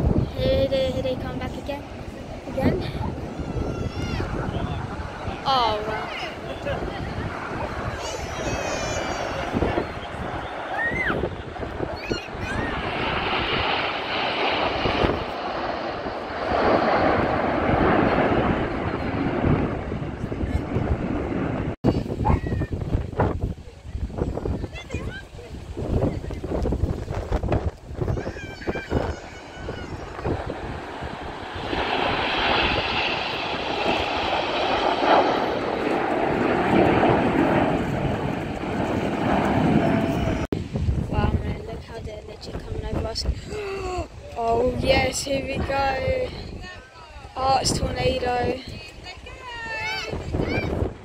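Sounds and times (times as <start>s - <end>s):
jets roaring past: 0.0s - 23.3s, 26.0s - 43.2s.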